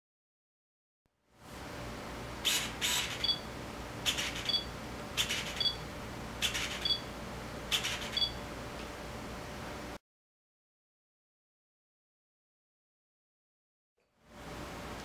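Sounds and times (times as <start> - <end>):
autofocus motor whirring: 2.4 - 5.8
two-note camera beep: 8.2 - 8.4.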